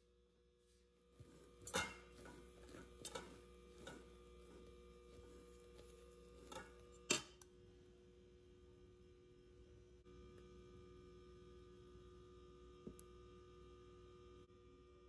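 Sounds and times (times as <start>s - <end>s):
steady hum: 0.0s - 15.0s
whisk clinking on metal bowl: 1.6s - 7.4s.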